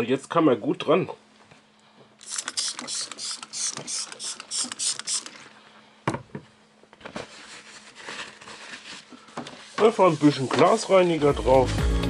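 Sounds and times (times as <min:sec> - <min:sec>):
spray bottle hissing spritzes: 0:02.2 - 0:05.4.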